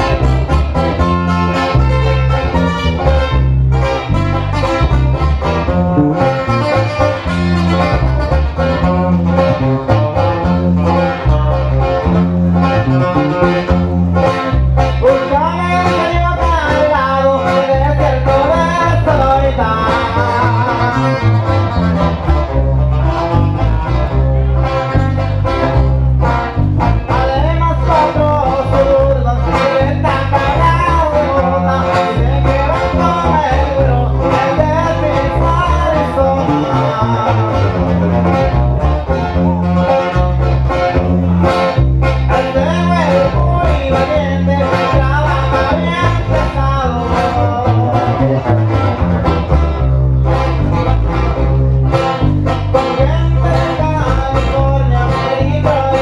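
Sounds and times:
acoustic guitar strumming: 0:00.0 - 0:56.0
bass and drums: 0:00.0 - 0:56.0
man singing: 0:08.7 - 0:49.9, 0:50.8 - 0:56.0.

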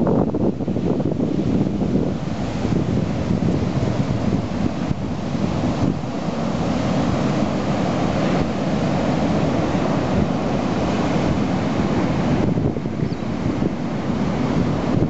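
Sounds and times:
storm surf breaking: 0:00.0 - 0:15.0
wind buffeting microphone: 0:00.0 - 0:15.0.

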